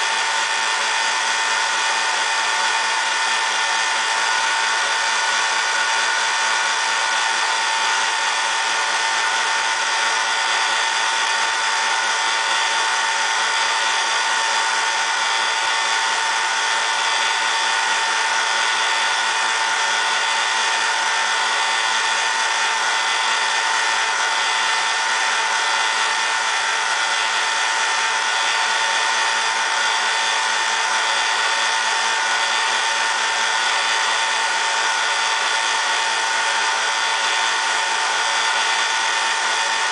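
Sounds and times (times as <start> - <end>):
electric motor whine: 0.0 - 39.9.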